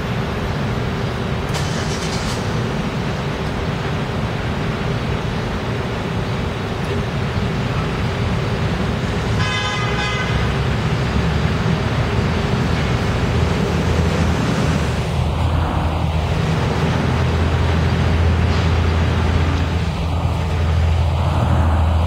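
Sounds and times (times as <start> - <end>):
bus diesel engine rumbling: 0.0 - 22.0
street traffic: 0.0 - 22.0
vehicle horn honking: 9.3 - 10.7.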